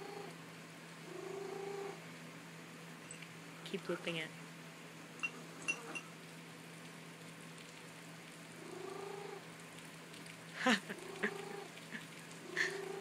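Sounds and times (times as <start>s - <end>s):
cat purring through speaker: 1.1s - 2.0s, 8.6s - 9.4s, 10.8s - 11.7s, 12.4s - 13.0s.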